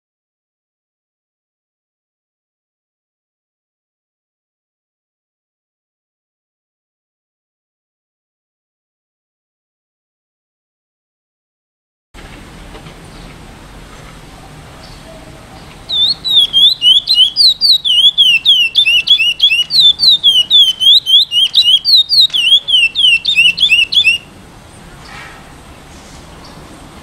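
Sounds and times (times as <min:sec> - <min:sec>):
finch singing whistled notes: 0:14.8 - 0:24.3.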